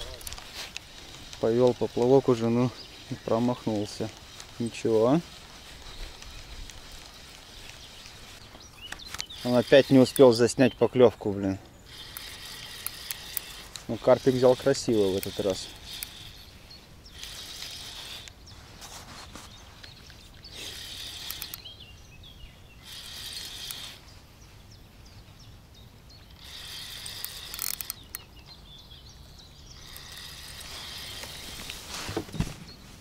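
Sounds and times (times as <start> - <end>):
fishing reel ratcheting: 9.1 - 10.6, 11.9 - 16.5, 17.1 - 18.4, 20.5 - 21.7, 22.8 - 24.0, 26.3 - 28.2, 29.8 - 31.7.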